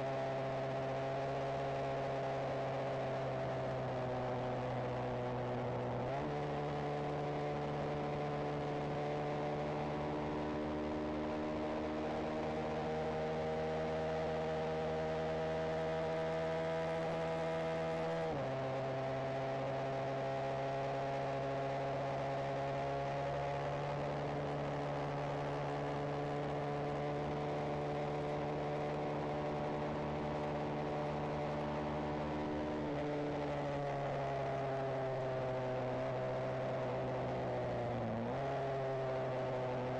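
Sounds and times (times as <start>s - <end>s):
motorcycle engine revving through gears: 8.1s - 39.8s.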